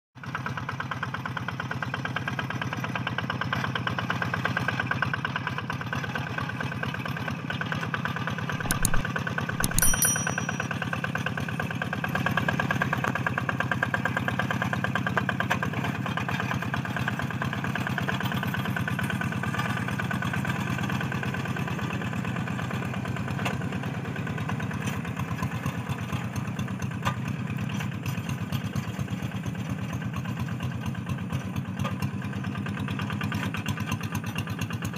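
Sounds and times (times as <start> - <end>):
diesel engine running steadily: 0.2 - 8.2, 12.7 - 34.9
sharp ringing clinks: 8.6 - 9.0, 9.6 - 10.9.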